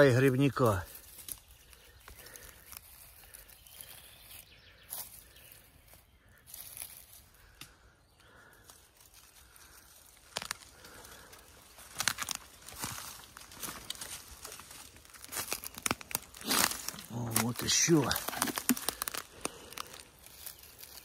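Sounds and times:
leaves and twigs crackling: 0:00.0 - 0:21.0.

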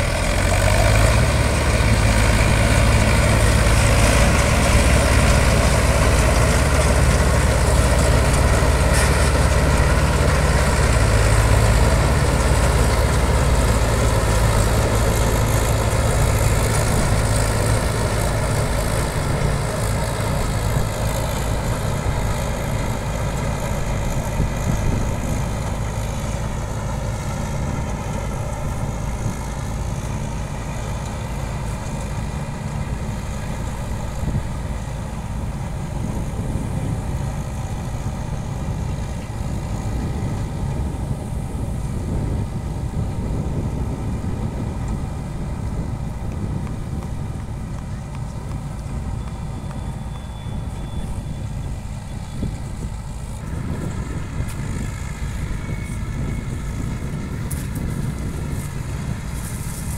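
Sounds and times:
combine harvester running: 0:00.0 - 0:59.9.

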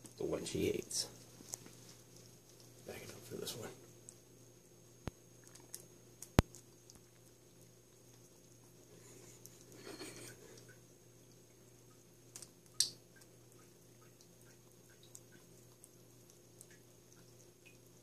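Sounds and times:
ferret licking: 0:12.3 - 0:17.8.

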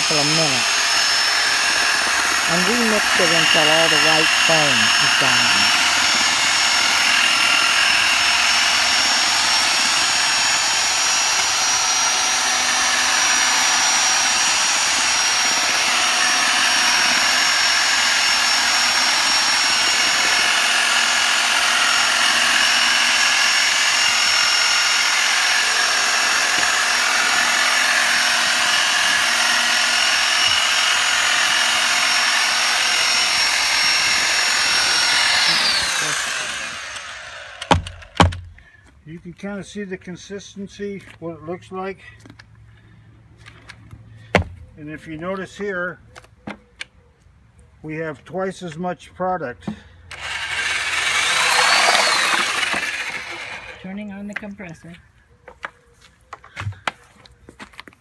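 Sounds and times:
electric paddle mixer whining: 0:00.0 - 0:38.4, 0:50.1 - 0:54.0.

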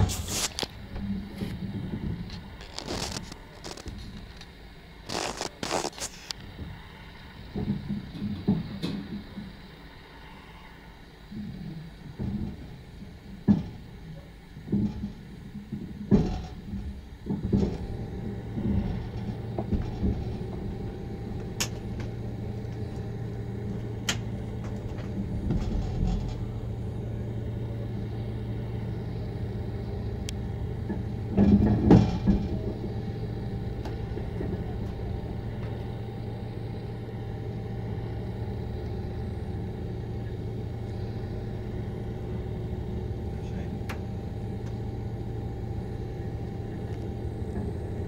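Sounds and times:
low machinery hum: 0:00.0 - 0:48.0
heavy rumbling clunk: 0:11.4 - 0:48.0.

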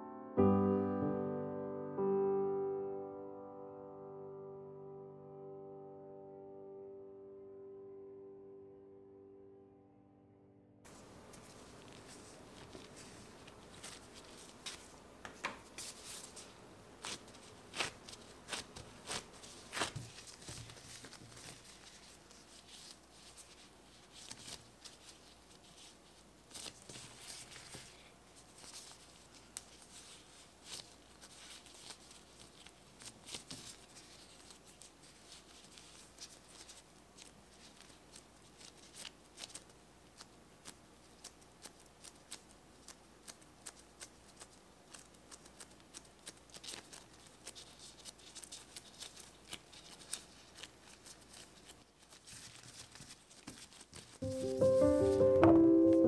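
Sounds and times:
soft pats of dough being shaped: 0:10.9 - 0:55.6
plastic gloves rustling: 0:10.9 - 0:56.0.

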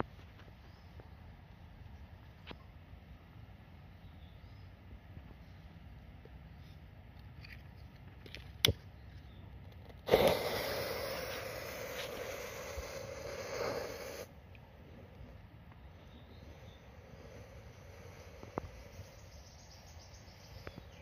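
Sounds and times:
firecracker fuse hissing: 0:10.1 - 0:14.3.

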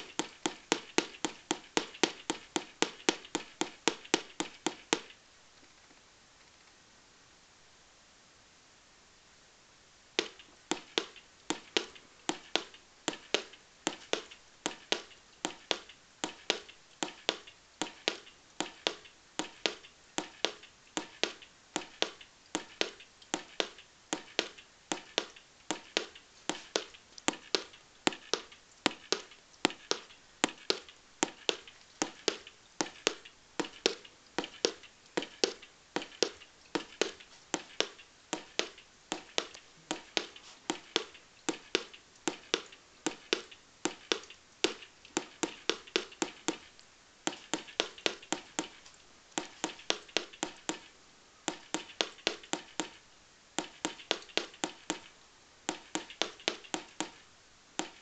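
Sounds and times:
electronic ticking clicks: 0:10.2 - 0:53.0.

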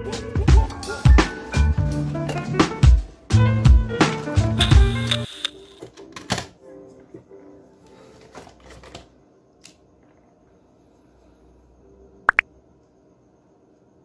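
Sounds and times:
sharp clicks: 0:04.6 - 0:05.6
faint steady hum: 0:09.2 - 0:14.0.

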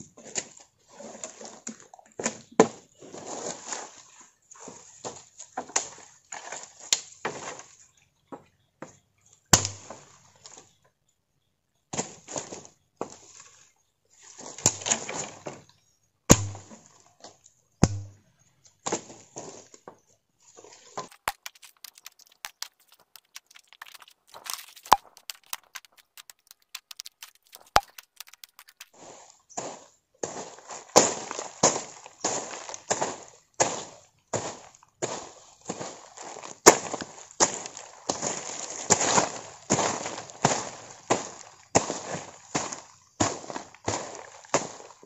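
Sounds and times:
twigs snapping: 0:21.1 - 0:29.0
dry leaves crunching underfoot: 0:21.1 - 0:29.2.

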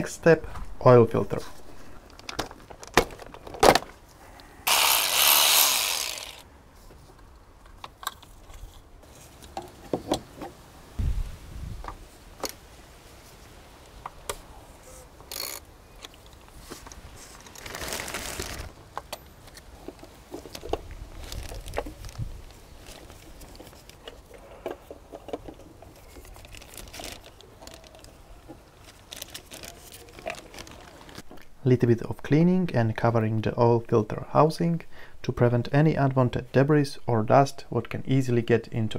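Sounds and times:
ratchet wrench clicking: 0:04.7 - 0:06.4
plastic bag rustling: 0:16.7 - 0:18.7, 0:20.2 - 0:24.0, 0:25.8 - 0:31.3.

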